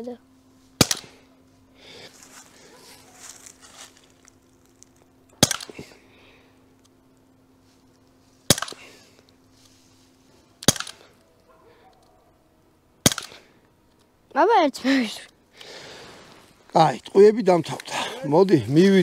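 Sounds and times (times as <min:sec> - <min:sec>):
air pistol shots: 0:00.8 - 0:01.2, 0:05.4 - 0:05.8, 0:08.5 - 0:08.9, 0:10.6 - 0:11.1, 0:13.0 - 0:13.5.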